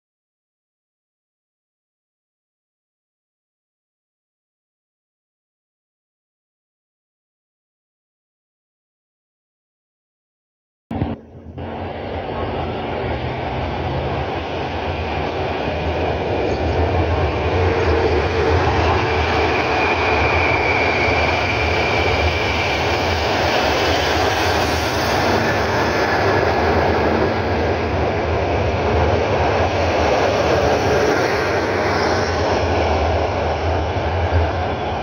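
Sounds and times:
high whine: 10.9 - 35.0
train engine and rolling rumble: 10.9 - 35.0.

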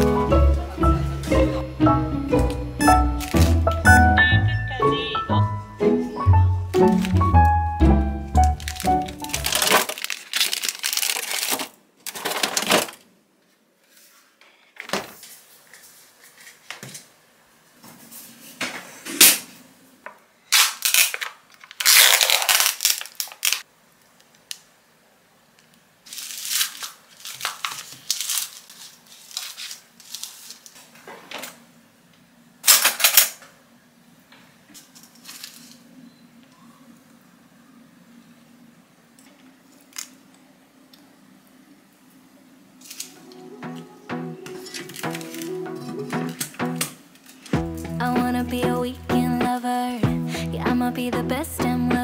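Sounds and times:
plastic packaging crinkling: 6.8 - 7.3, 8.3 - 13.0, 20.5 - 23.7, 26.0 - 31.0, 44.6 - 45.6.

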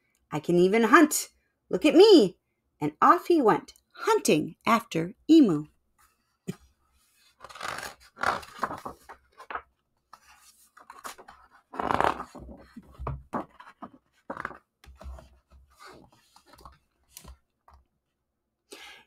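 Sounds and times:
book pages turning: 7.0 - 17.5.

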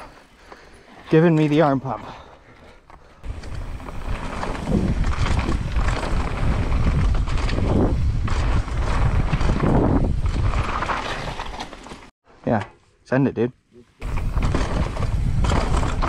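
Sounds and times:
bike knocking and rattling: 0.4 - 12.1, 14.0 - 16.0
wind rushing on microphone: 3.2 - 10.8, 14.0 - 16.0.

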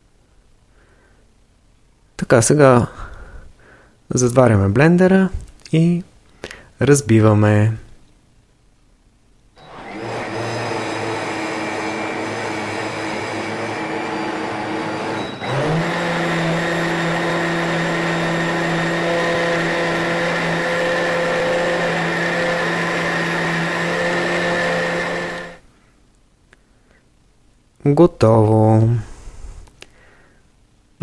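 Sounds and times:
blender motor running: 9.6 - 25.6.

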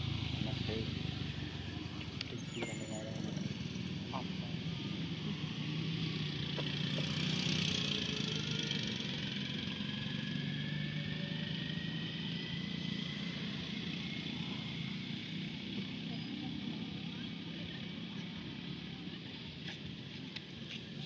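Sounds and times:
small engine humming: 0.0 - 21.0.

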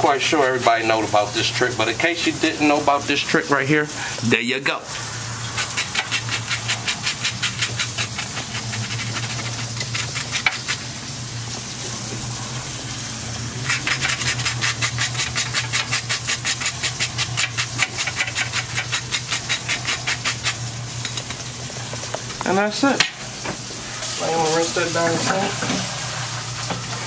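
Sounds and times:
knife scraping toasted bun: 5.5 - 10.9, 13.6 - 21.2.

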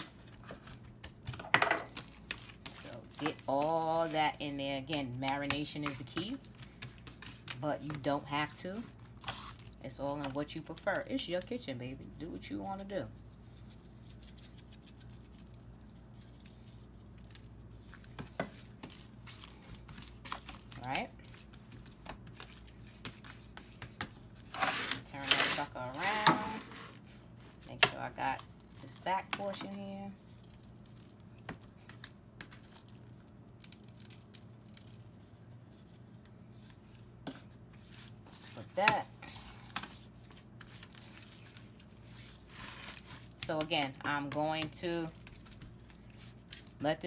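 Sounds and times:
low steady hum: 0.0 - 47.0
hand rubbing spice into meat: 12.0 - 25.9
hand rubbing seasoning into meat: 12.1 - 18.0.

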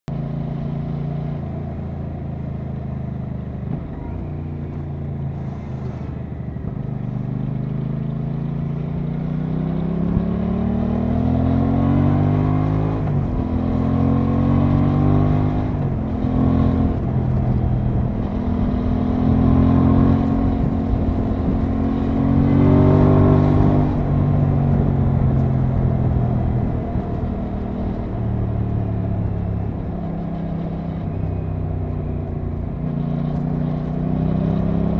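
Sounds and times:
motorcycle engine shifting up gears: 0.2 - 34.9
wind noise on microphone: 14.9 - 28.7.

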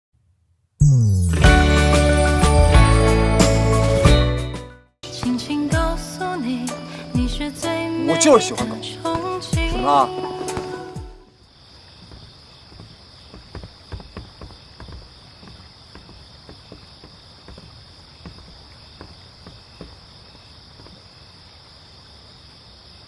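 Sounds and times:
crickets chirring: 5.4 - 23.0
footsteps on wooden walkway: 9.1 - 11.1, 12.0 - 21.1.

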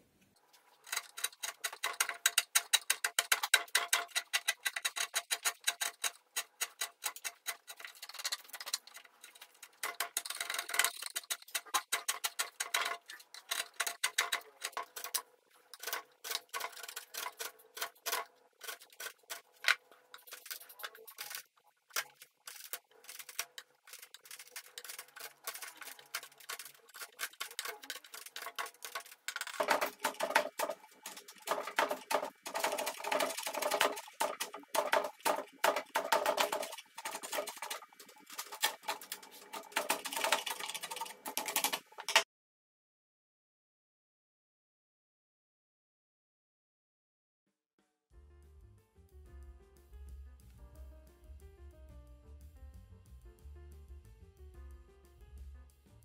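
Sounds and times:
chisel scraping wood: 0.8 - 42.2.

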